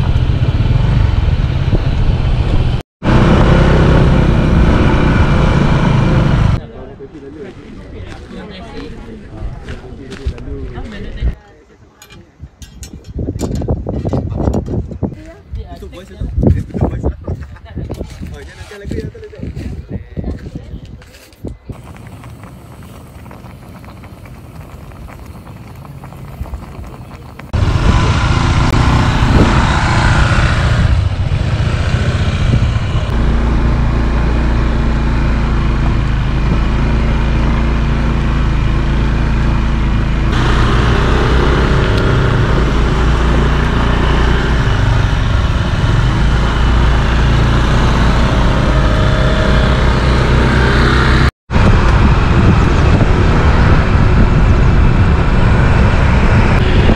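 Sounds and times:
motorcycle engine: 0.0s - 6.6s, 21.8s - 56.9s
wind rushing over microphone: 0.0s - 6.6s, 12.3s - 33.3s, 47.1s - 56.9s.

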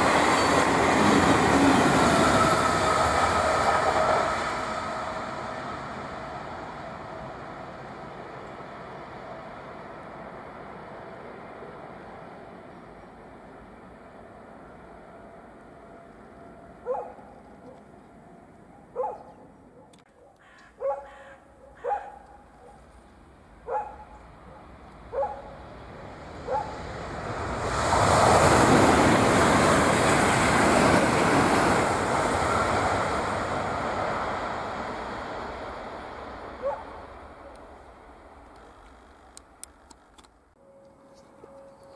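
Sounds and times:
high-speed train passing: 0.0s - 19.8s, 23.0s - 41.9s
dog barking: 16.8s - 17.8s, 18.8s - 22.9s, 23.6s - 25.6s, 26.5s - 26.8s, 36.6s - 37.1s.

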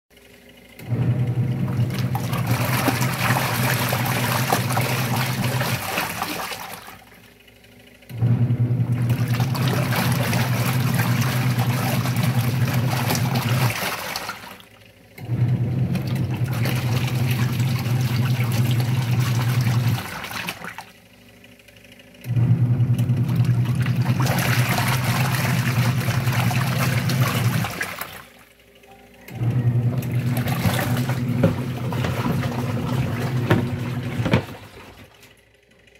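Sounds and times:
washing machine motor hum: 0.1s - 35.9s
clothes churning in water: 0.9s - 7.2s, 8.8s - 14.7s, 15.3s - 21.0s, 23.0s - 28.4s, 29.8s - 35.3s.

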